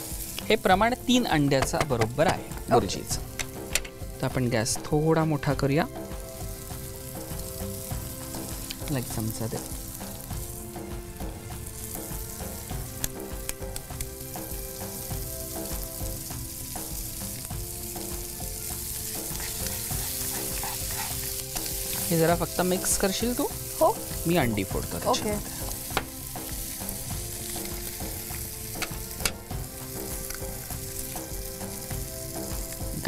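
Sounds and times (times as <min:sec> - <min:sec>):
food sizzling in a frying pan: 0:00.0 - 0:33.0
spatula scraping a pan: 0:19.2 - 0:22.1.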